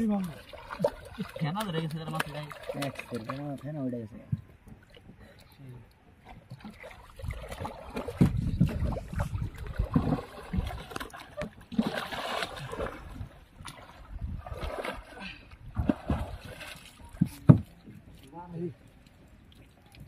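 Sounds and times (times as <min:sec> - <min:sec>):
water splashing against boat: 0:00.0 - 0:20.0
knocks and thumps on hull: 0:06.4 - 0:15.1, 0:15.7 - 0:18.0.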